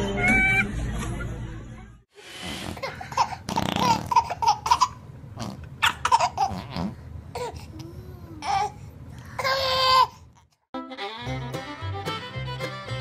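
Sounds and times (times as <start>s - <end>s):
baby squealing: 0.0s - 0.8s
baby giggling: 2.8s - 5.0s.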